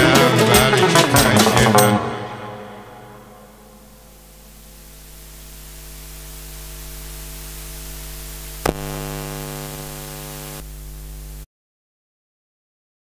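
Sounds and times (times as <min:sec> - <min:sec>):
electrical hiss and mains hum: 0:03.8 - 0:11.4.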